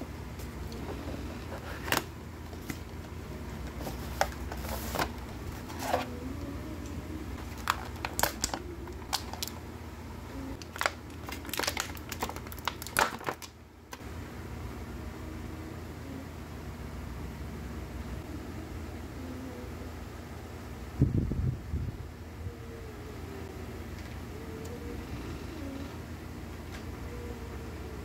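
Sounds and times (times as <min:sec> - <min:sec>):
steady low hum: 0:00.0 - 0:28.0
plastic packaging crinkling: 0:07.4 - 0:09.6, 0:10.6 - 0:14.0.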